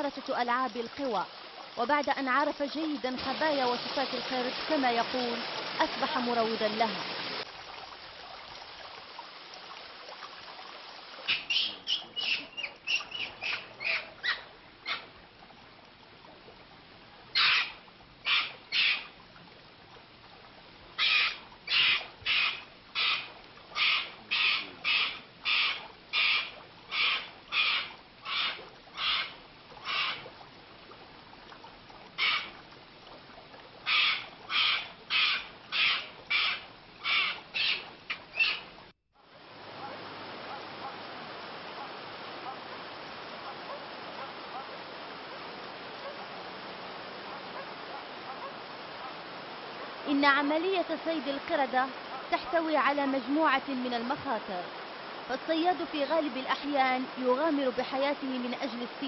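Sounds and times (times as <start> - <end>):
animal's short harsh calls: 21.0 - 30.2.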